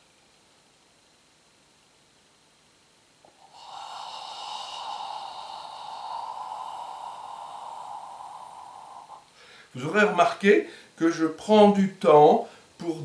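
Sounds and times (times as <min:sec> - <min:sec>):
man's long slow exhalation: 0:03.3 - 0:09.7.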